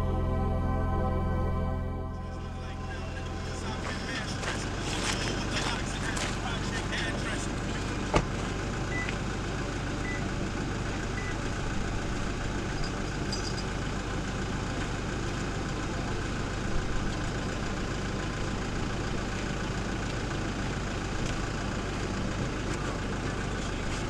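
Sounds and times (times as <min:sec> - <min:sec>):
car engine idling: 0:02.2 - 0:24.0.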